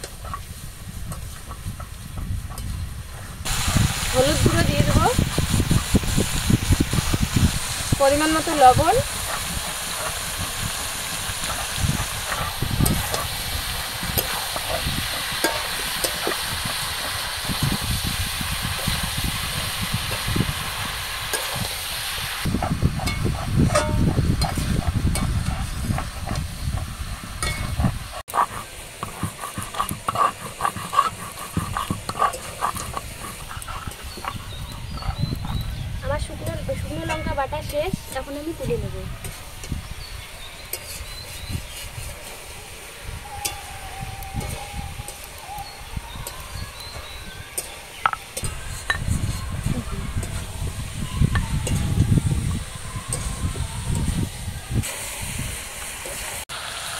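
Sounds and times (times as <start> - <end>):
food sizzling in metal pan: 0.0 - 56.9
metal spatula scraping and stirring: 8.0 - 35.7, 40.5 - 42.6, 46.2 - 51.9
stone pestle rubbing on slab: 27.4 - 35.7.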